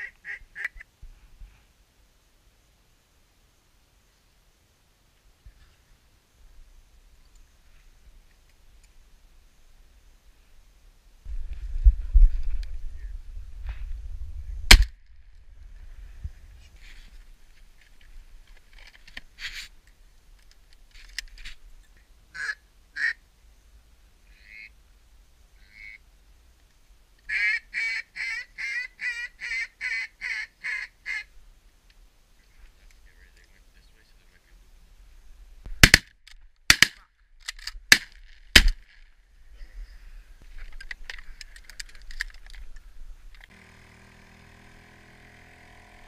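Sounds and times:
shotgun shot: 14.7 - 14.9, 35.8 - 36.1, 37.9 - 38.8.

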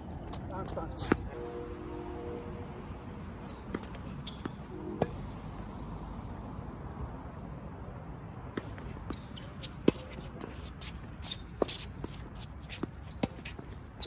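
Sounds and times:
tennis ball hit by racket: 8.5 - 13.7.

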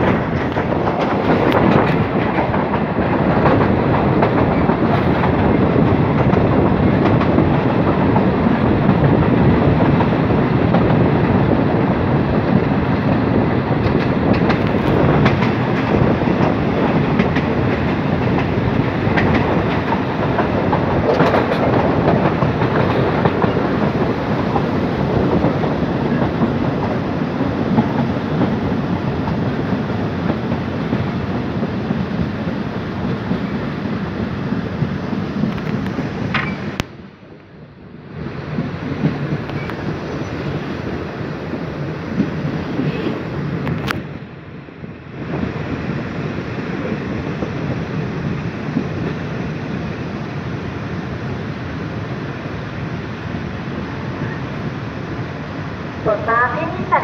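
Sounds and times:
wheels clacking over rail joints: 0.0 - 32.0, 34.7 - 37.0
train rumble: 0.0 - 57.0.

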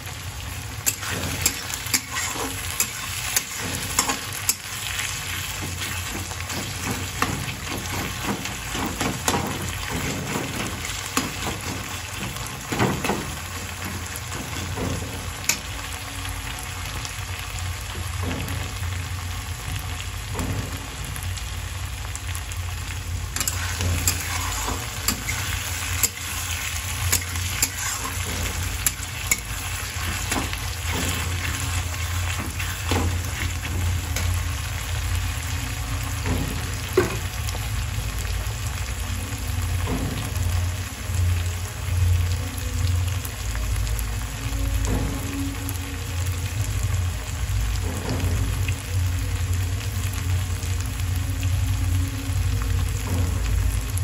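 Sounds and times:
onions sizzling in hot oil: 0.0 - 54.0
steel spatula scraping pan: 0.9 - 14.8, 23.4 - 34.5.

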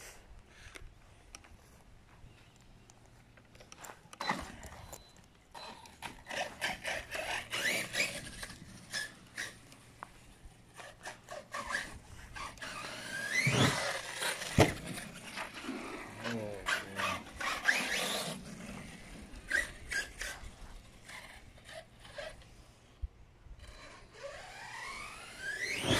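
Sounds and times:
electric motor whining: 5.6 - 9.6, 10.7 - 22.6, 23.6 - 25.9.

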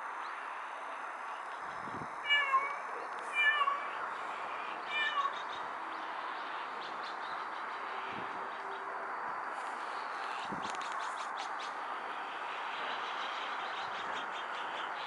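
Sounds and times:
cat meowing: 2.2 - 4.0, 4.9 - 5.4.

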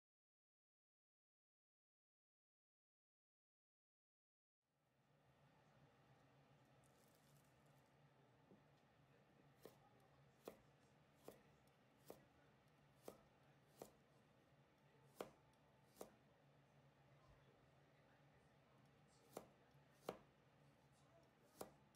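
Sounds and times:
knife chopping on wooden board: 9.6 - 9.8, 10.4 - 10.6, 11.2 - 12.3, 13.0 - 14.0, 15.1 - 16.2, 19.3 - 20.3, 21.5 - 21.9.

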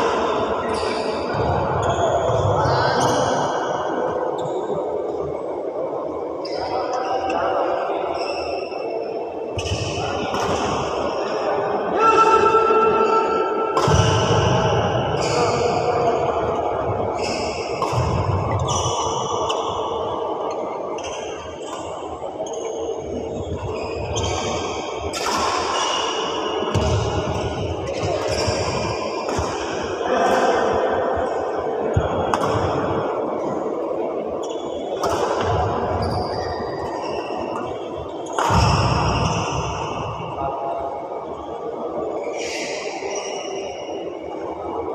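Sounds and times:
rackets hitting shuttlecock: 9.6 - 10.9, 13.7 - 14.5, 17.7 - 18.7, 26.7 - 30.5, 31.9 - 32.8, 35.0 - 35.7, 37.6 - 39.4.

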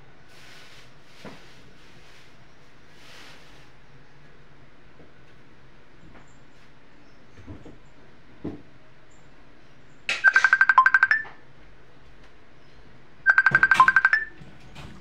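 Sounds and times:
phone ringtone beeps: 10.2 - 11.4, 13.3 - 14.4.

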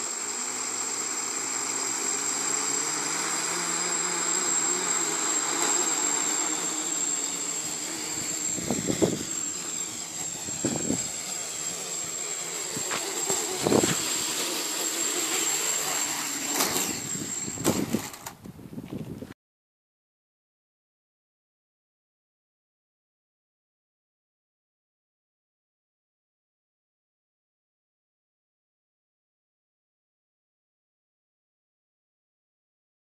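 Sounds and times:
quadcopter motors whirring: 0.0 - 19.2.

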